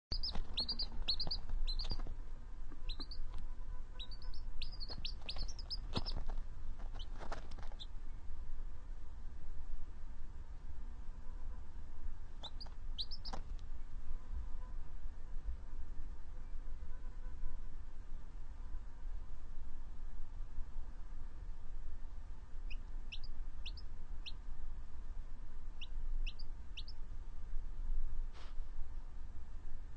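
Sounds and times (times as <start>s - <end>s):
chick peeping: 0.0s - 7.9s, 12.4s - 13.5s, 22.7s - 24.4s, 25.8s - 27.0s.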